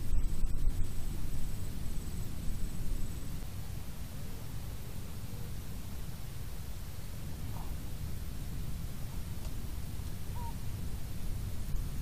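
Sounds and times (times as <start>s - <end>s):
wind buffeting microphone: 7.0s - 12.0s.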